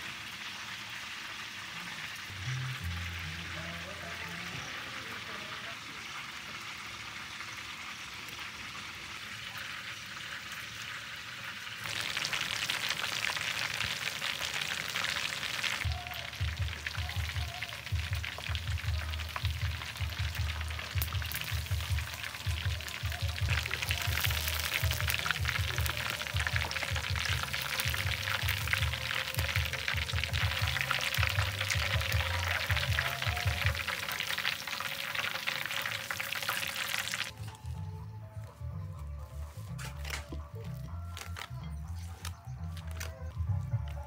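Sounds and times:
chicken deep-frying in hot oil: 0:00.0 - 0:37.4
low pulsing beat: 0:16.3 - 0:33.8.

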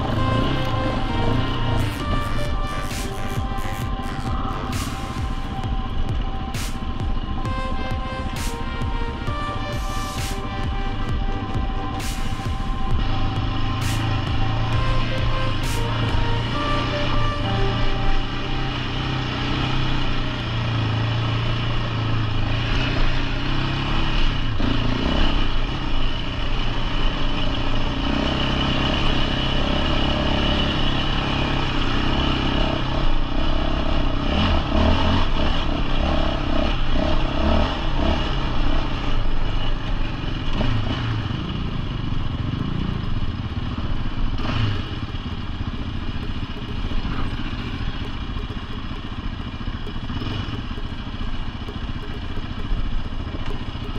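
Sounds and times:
quad engine revving: 0:00.0 - 0:06.4, 0:07.2 - 0:53.9.

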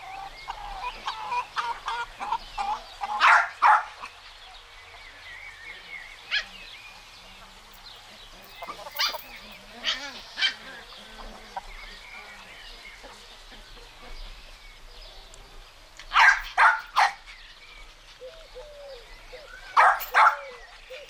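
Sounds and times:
puppies yapping: 0:00.8 - 0:04.0, 0:08.6 - 0:11.4, 0:16.1 - 0:17.3, 0:19.7 - 0:21.0.

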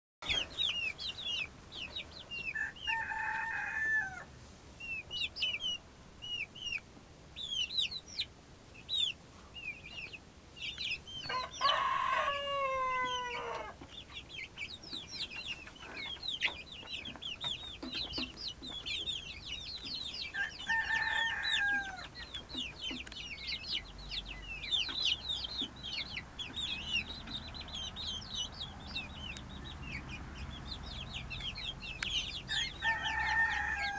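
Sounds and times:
chicks peeping: 0:00.2 - 0:33.9
young cockerel crowing attempts: 0:02.5 - 0:04.3, 0:11.2 - 0:13.8, 0:20.2 - 0:22.2, 0:32.5 - 0:33.9.

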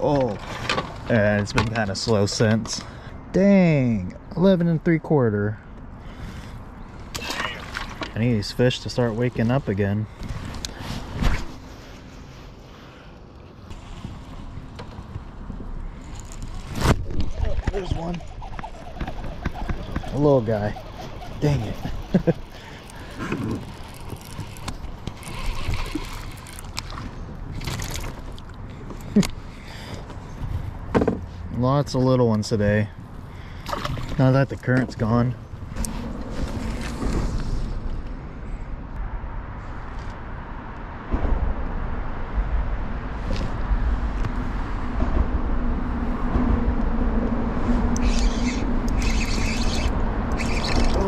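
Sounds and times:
water splashing and trickling: 0:00.0 - 0:01.5, 0:06.9 - 0:09.6, 0:15.9 - 0:29.1, 0:33.3 - 0:37.3
rod and reel clicks: 0:18.1 - 0:26.9, 0:48.0 - 0:51.0.

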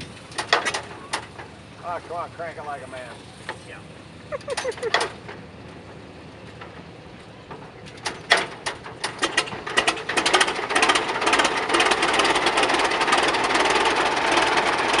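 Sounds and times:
tractor engine starting and running: 0:00.0 - 0:15.0.

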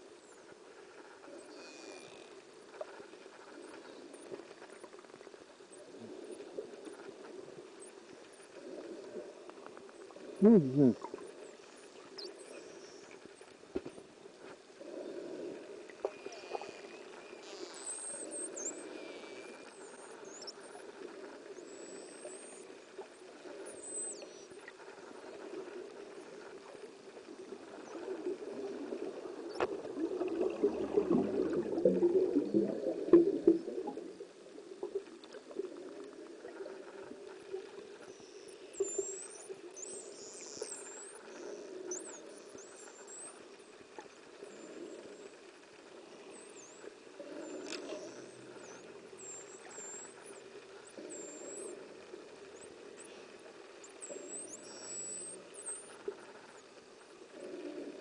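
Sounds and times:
underwater hum: 0:00.0 - 0:58.0
dolphins whistling underwater: 0:14.8 - 0:34.2, 0:36.5 - 0:45.3, 0:45.9 - 0:58.0
rush of bubbles: 0:29.7 - 0:34.0.

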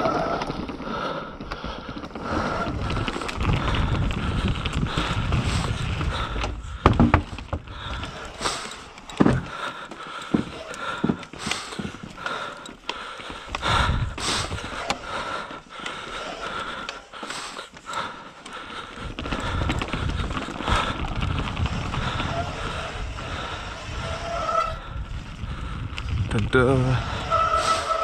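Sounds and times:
bike rattling: 0:00.0 - 0:28.0
bike tyres clattering on boardwalk: 0:00.0 - 0:28.0
wind rumble on microphone: 0:02.2 - 0:08.3, 0:13.5 - 0:14.8, 0:19.0 - 0:28.0.

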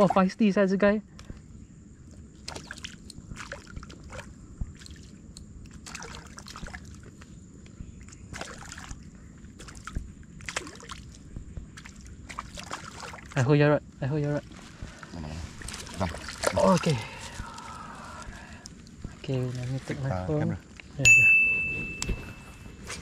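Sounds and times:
fish thrashing water splashes: 0:02.4 - 0:05.1, 0:05.7 - 0:07.1, 0:08.2 - 0:13.4, 0:14.4 - 0:20.0.

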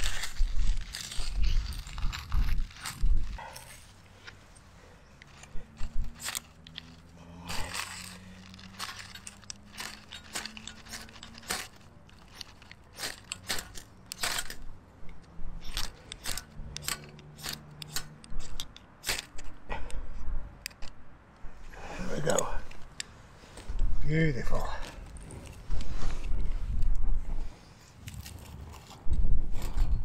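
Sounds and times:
ferrocerium rod scraped with striker: 0:05.2 - 0:14.7, 0:15.5 - 0:19.5.

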